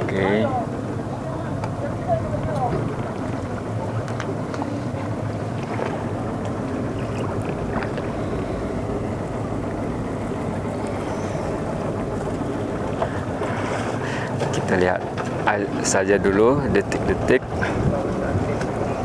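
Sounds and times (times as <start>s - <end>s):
motorboat engine running: 0.0s - 19.0s
wind on microphone: 15.7s - 19.0s.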